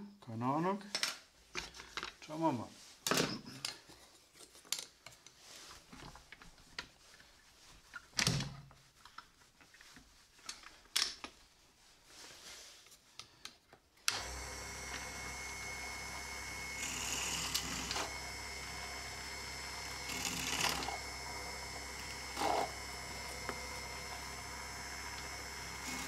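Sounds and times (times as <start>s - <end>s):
drill press motor running: 14.1s - 26.0s.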